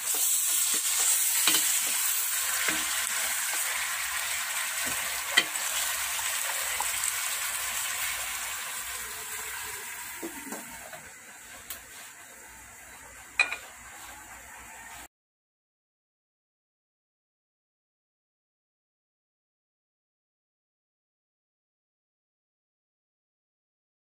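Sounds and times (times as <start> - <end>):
food sizzling in a pot: 0.0 - 15.1.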